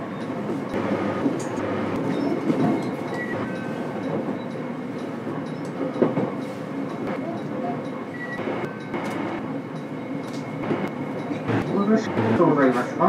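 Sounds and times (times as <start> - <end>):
train wheels rumbling on rail: 0.0 - 13.0
track knocks: 7.0 - 12.9.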